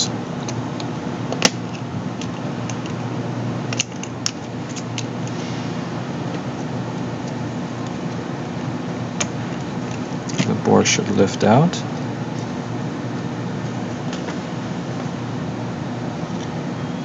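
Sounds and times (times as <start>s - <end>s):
room hum: 0.0s - 17.0s.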